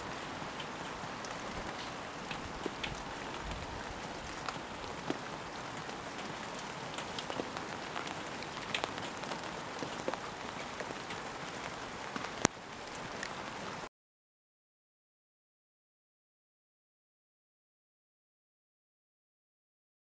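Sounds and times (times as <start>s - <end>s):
rain falling: 0.0s - 13.9s.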